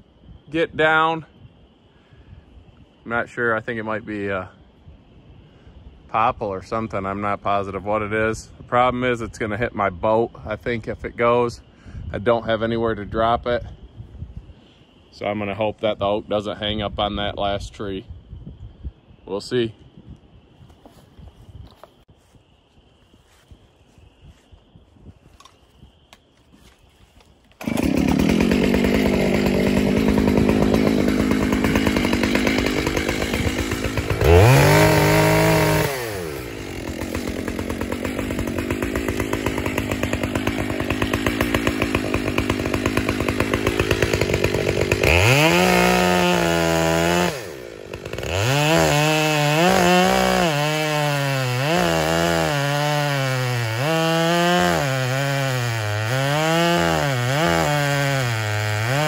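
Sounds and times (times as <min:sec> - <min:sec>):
chainsaw cutting into wood: 0:27.5 - 0:59.0
chainsaw running: 0:27.5 - 0:59.0.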